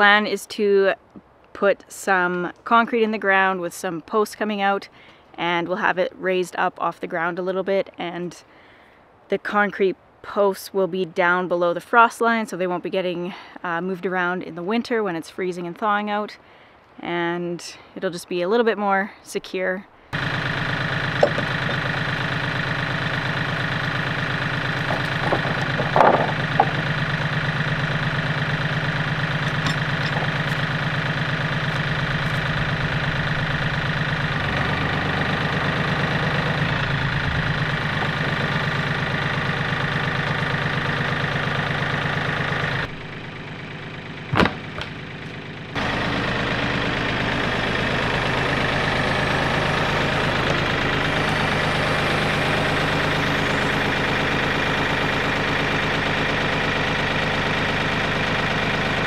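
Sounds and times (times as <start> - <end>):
tractor diesel engine running: 0.0 - 1.0, 20.1 - 59.0
sharp knocks: 21.2 - 22.0, 24.9 - 26.9, 44.3 - 45.0.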